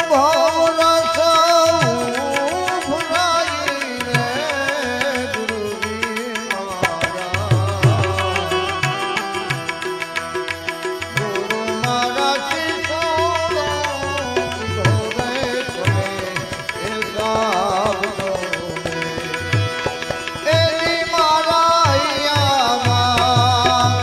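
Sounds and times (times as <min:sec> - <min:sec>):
harmonium chords and melody: 0:00.0 - 0:24.0
person singing: 0:00.0 - 0:24.0
hand drum beat: 0:10.7 - 0:24.0.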